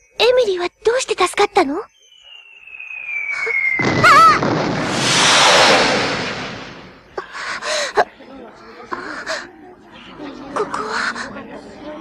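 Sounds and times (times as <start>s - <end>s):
whistle sliding downward: 1.9s - 7.0s
explosion-like rushing roar: 3.8s - 7.1s.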